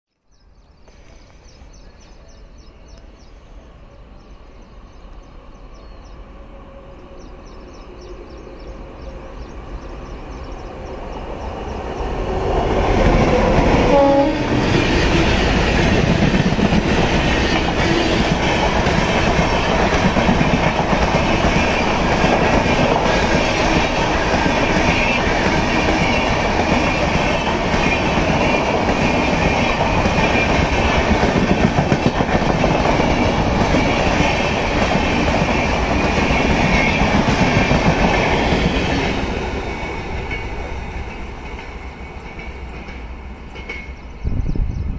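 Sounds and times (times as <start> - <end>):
train wheels rumbling on rail: 0.9 - 44.9
clickety-clack over rail joints: 12.5 - 44.2.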